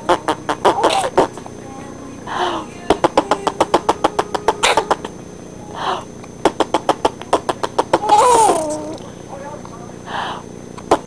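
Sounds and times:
baby squealing: 0.0s - 1.3s, 2.3s - 5.1s, 5.8s - 9.0s
baby laughing: 0.0s - 1.4s, 2.3s - 5.1s, 5.7s - 9.0s.

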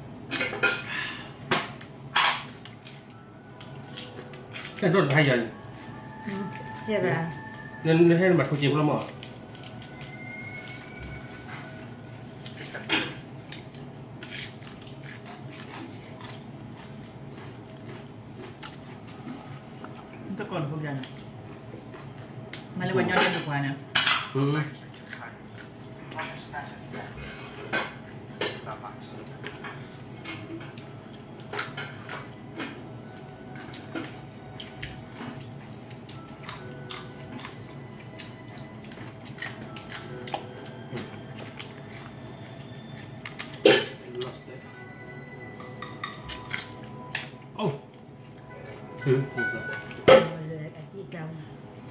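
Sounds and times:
lobster shells cracking: 8.4s - 10.2s, 13.5s - 18.9s.

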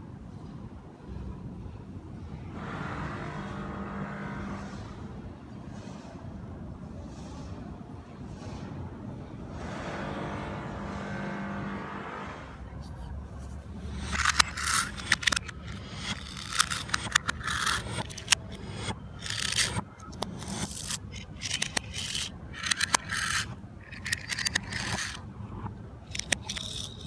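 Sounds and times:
toy cars scraping on stone: 12.8s - 25.2s, 26.1s - 27.0s.

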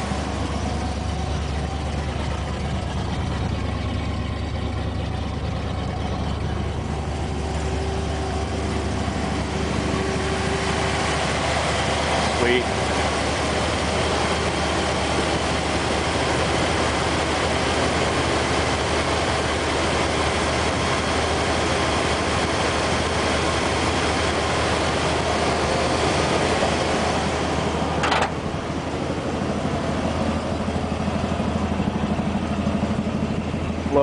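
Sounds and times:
engine knock: 0.0s - 26.4s, 28.0s - 28.5s
car engine idling: 0.0s - 34.0s.

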